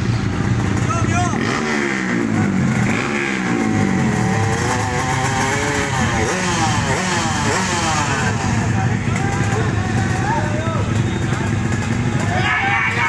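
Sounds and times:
motorcycle engines revving: 0.0s - 13.0s.

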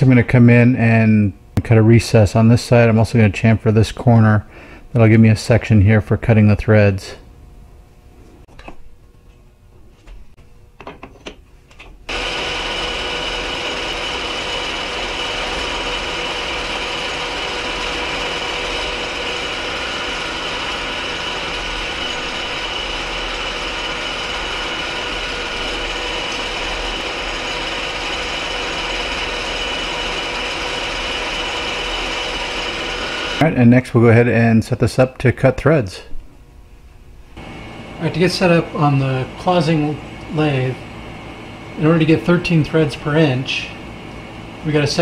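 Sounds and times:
metal lathe running with whine: 12.1s - 33.4s, 37.4s - 45.0s.

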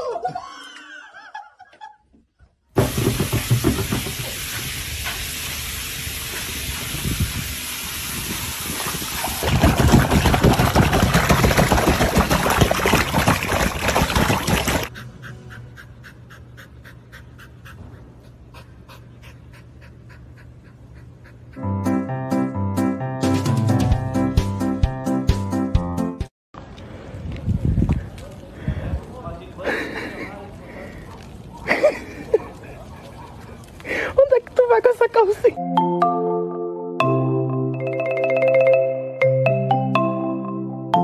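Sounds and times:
water splashing from swimming dog: 8.2s - 14.9s
dog panting: 14.9s - 21.8s.

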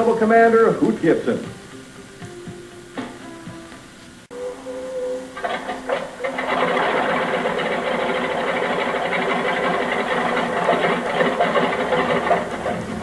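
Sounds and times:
radial plane engine running: 4.2s - 13.0s.

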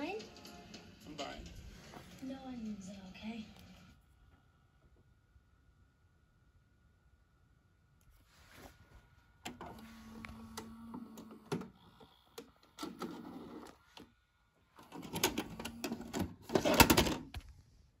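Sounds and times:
tape mechanism clicks and clunks: 9.4s - 14.1s, 14.8s - 17.5s
motor whir: 9.5s - 14.0s.

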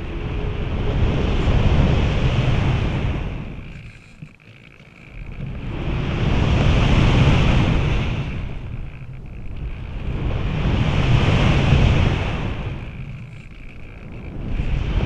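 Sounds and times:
wind rushing over camera: 0.0s - 15.0s.

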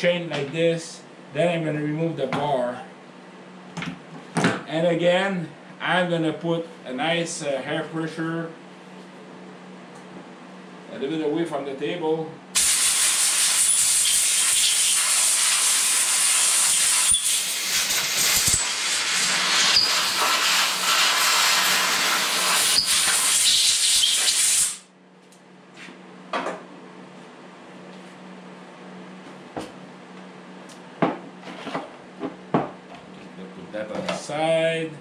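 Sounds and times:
air blow gun hissing: 12.6s - 24.9s.

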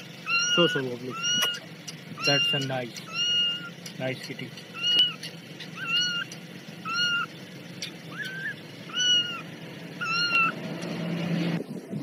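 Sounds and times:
kitten mewing: 0.2s - 3.8s, 4.8s - 7.3s, 8.1s - 10.6s.

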